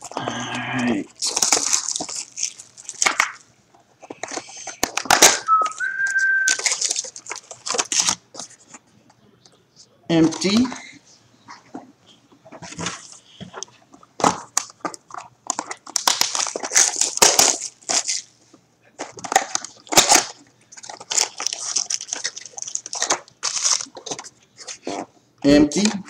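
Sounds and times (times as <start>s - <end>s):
foil packs crinkling: 1.0s - 8.6s, 14.1s - 18.4s, 19.0s - 25.1s.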